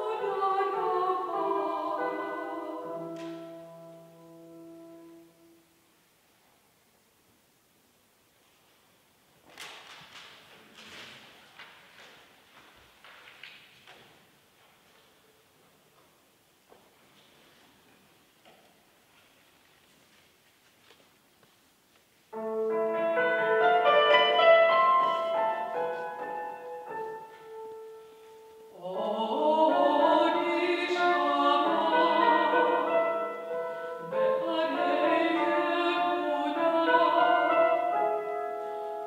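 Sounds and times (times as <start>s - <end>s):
woman singing operatically: 0.0s - 3.3s, 28.7s - 37.9s.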